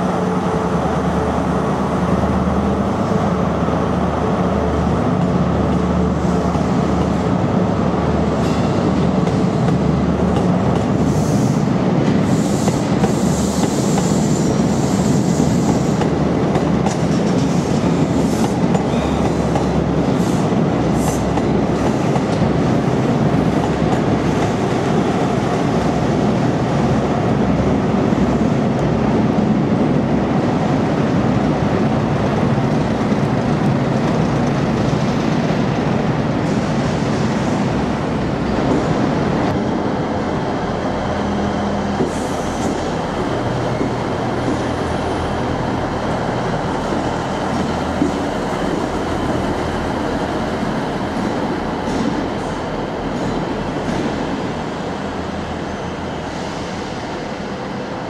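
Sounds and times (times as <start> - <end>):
diesel train engine hum: 0.0 - 58.0
diesel train rumbling past: 0.0 - 58.0.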